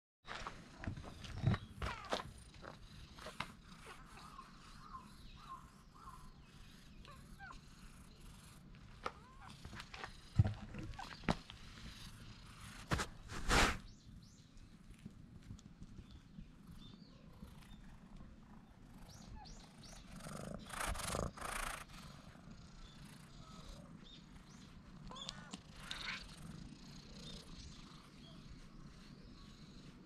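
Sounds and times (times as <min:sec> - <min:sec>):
cats purring: 0:00.3 - 0:30.0
cat brushing against camera: 0:11.5 - 0:13.9.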